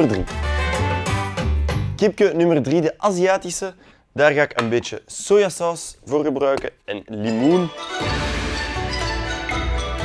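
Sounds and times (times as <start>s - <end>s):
instrumental background music: 0.0s - 2.2s, 7.2s - 10.0s.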